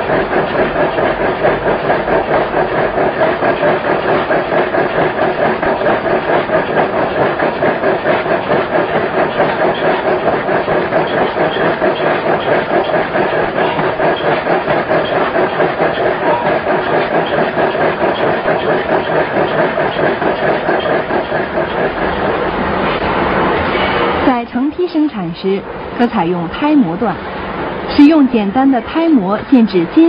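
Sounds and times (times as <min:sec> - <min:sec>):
power hammer pulsing: 0:00.0 - 0:23.1.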